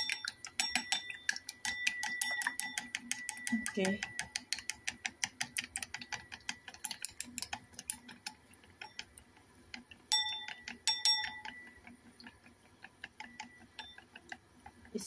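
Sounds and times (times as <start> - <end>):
ceramic bowl ringing: 0.0 - 4.4, 10.1 - 11.8
chopsticks clicking against bowl: 0.0 - 14.9.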